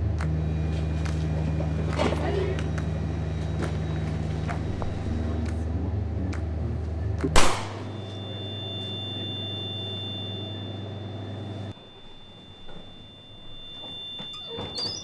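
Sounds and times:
steady low hum: 0:00.0 - 0:15.0
loud gunshot: 0:07.4 - 0:07.9
faint high steady tone: 0:07.8 - 0:15.0.

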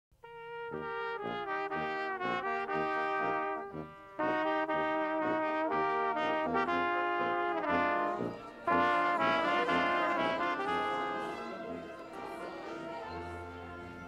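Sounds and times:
trumpets playing held notes: 0:00.2 - 0:14.0.

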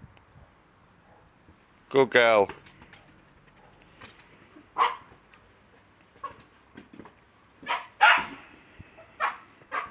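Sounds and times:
dog barking: 0:04.8 - 0:05.1, 0:07.6 - 0:08.3, 0:09.2 - 0:09.9.

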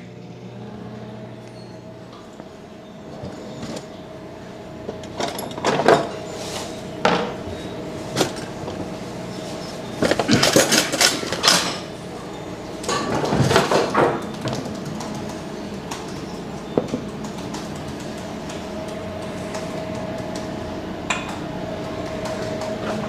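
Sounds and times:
dishes and utensils knocking and clinking: 0:04.9 - 0:06.2, 0:10.0 - 0:11.9.

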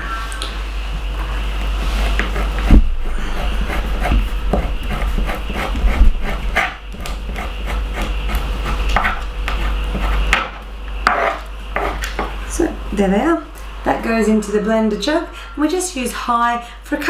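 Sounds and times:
metal spoon scratching: 0:02.0 - 0:10.4.

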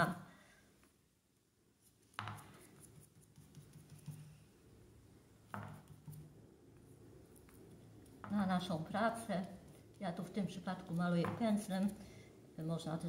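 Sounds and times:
paintbrush dabbing paper: 0:01.7 - 0:04.6, 0:05.5 - 0:12.1.

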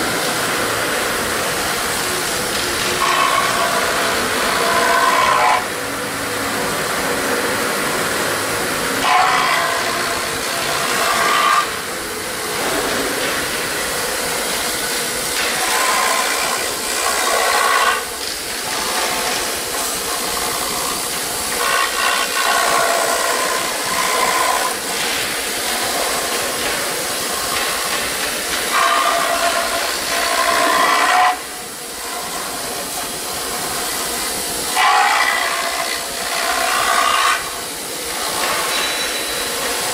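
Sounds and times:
router bit cutting foam: 0:02.2 - 0:05.8, 0:09.0 - 0:12.0, 0:15.4 - 0:26.8, 0:28.7 - 0:32.8, 0:34.8 - 0:39.0.

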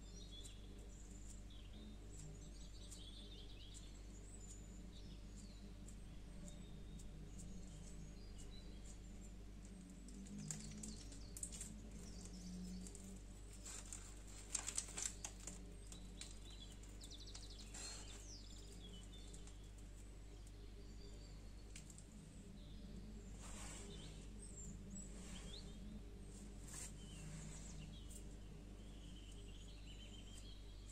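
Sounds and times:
steady low hum: 0:00.0 - 0:30.9
soft rustling: 0:06.9 - 0:20.5, 0:21.5 - 0:30.6.

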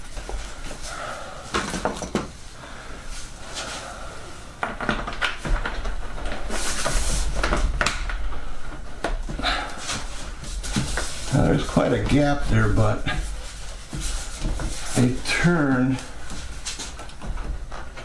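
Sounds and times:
scraping rustle: 0:05.4 - 0:07.8, 0:09.4 - 0:18.0.

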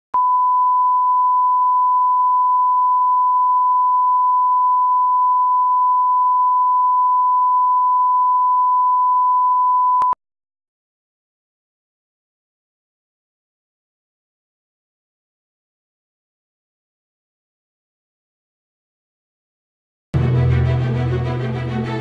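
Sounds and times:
steady sine reference tone: 0:00.2 - 0:10.2.

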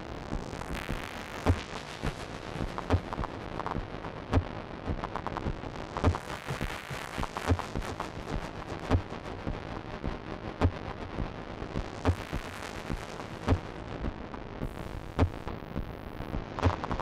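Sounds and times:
rumbling crackling noise texture: 0:00.0 - 0:17.0.

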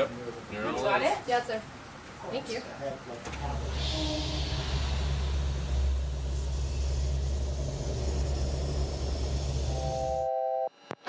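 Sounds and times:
turboprop engines droning: 0:03.3 - 0:10.2.

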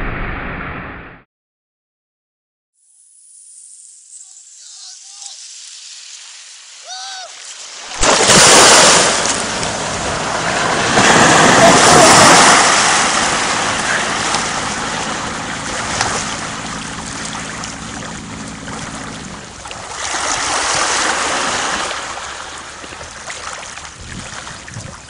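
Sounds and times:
water rushing and sloshing: 0:05.7 - 0:25.0
truck engine humming: 0:09.0 - 0:24.0.

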